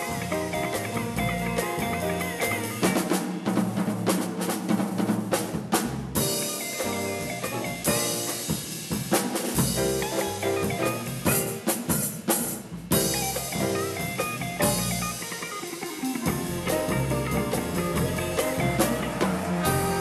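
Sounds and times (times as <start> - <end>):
electric guitar chords: 0.0 - 3.1, 13.0 - 20.0
jazz combo playing: 0.0 - 3.2, 5.8 - 20.0.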